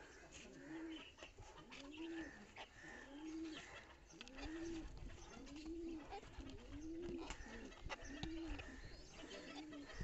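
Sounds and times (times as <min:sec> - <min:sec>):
pigeons cooing: 0:00.0 - 0:10.0
chickens pecking on floor: 0:03.4 - 0:10.0.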